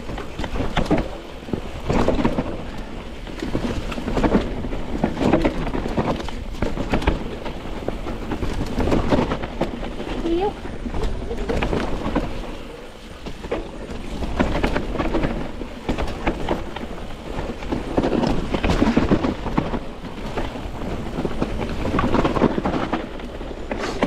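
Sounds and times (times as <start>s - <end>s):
bike knocking and rattling: 0.0s - 24.0s
tyres rolling over stones: 0.0s - 24.0s
wind rushing over microphone: 0.0s - 24.0s.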